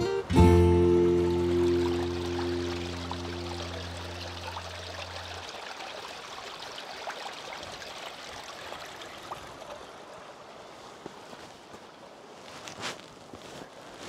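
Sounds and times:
low background music notes: 0.0s - 4.9s
stream water trickling: 0.6s - 12.1s.

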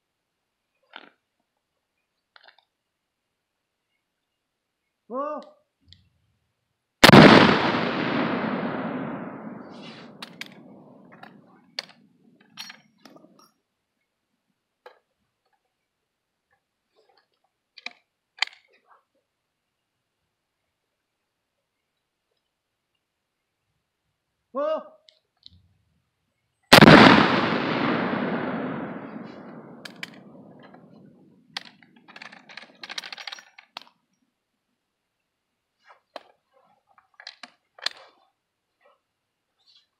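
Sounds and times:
metallic clicks of gun handling: 2.3s - 2.7s, 9.6s - 13.6s, 17.1s - 18.8s, 27.8s - 34.0s, 37.0s - 38.2s
shotgun report rolling away: 7.0s - 12.9s, 26.7s - 33.2s.

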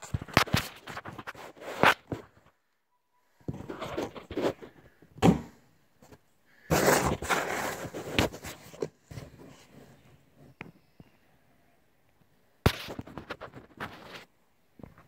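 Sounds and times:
phone handling rustling and scraping: 3.4s - 5.2s, 6.0s - 10.0s.

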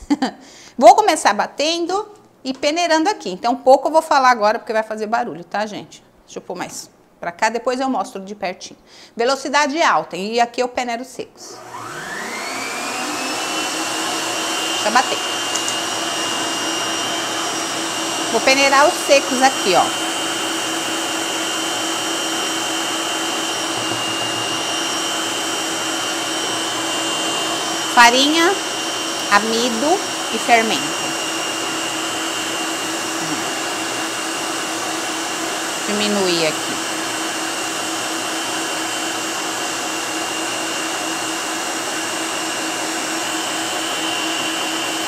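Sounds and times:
stand mixer motor whirring: 11.5s - 45.0s.

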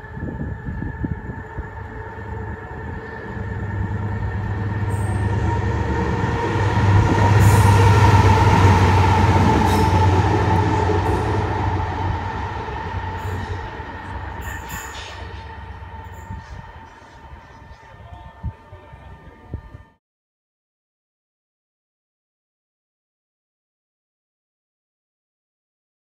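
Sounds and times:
diesel locomotive passing: 0.0s - 20.0s.

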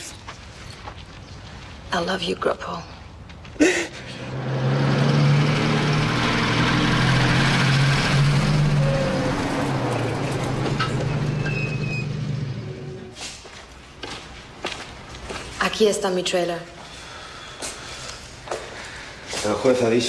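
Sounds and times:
road noise: 0.0s - 20.0s
truck engine running: 4.3s - 13.2s.

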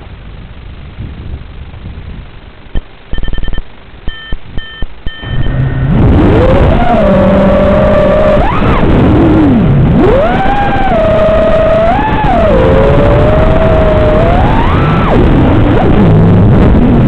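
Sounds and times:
short electronic beeps: 2.8s - 6.4s
drone motors whining: 5.1s - 17.0s.

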